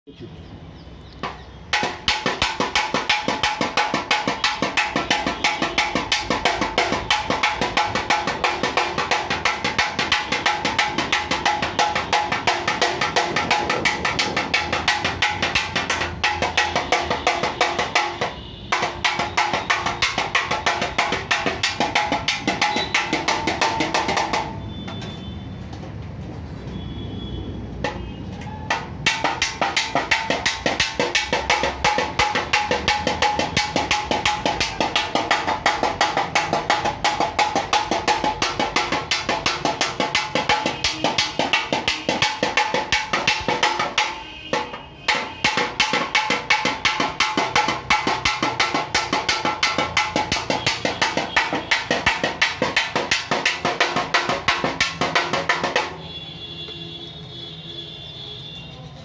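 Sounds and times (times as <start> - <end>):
fast hammer taps on metal bumper: 1.2 - 25.1, 28.7 - 56.0.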